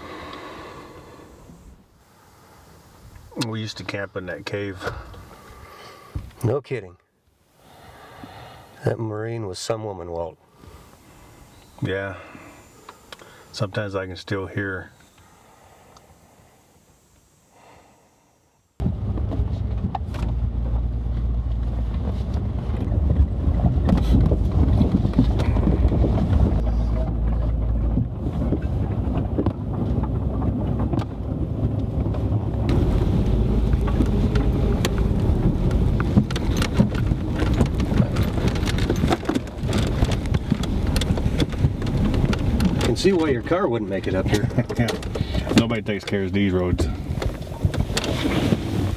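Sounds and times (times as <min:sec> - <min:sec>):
engine and tyre rumble: 0:18.7 - 0:48.9
vehicle knocks and rattles: 0:18.8 - 0:46.0, 0:46.7 - 0:48.9.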